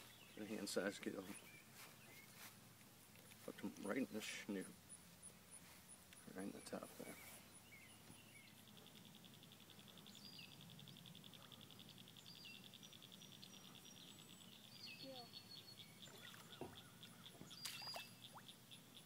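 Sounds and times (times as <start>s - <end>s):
short bird chirps: 17.5s - 18.5s.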